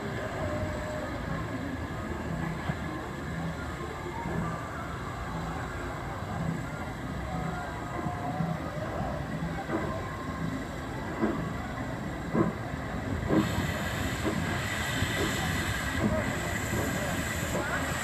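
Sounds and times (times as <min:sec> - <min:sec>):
steam locomotive chuffing: 0:10.9 - 0:18.0
steam hissing: 0:12.3 - 0:18.0.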